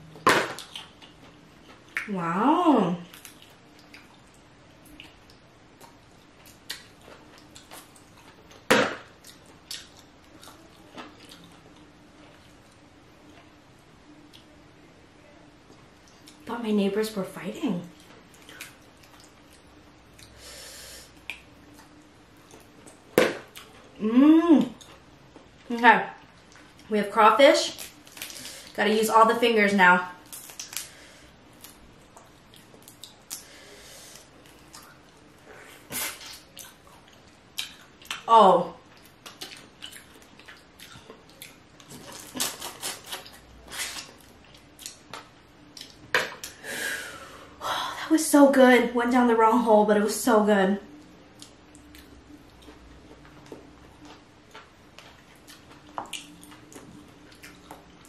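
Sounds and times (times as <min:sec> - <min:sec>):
crawfish shells cracking: 0:30.2 - 0:30.9.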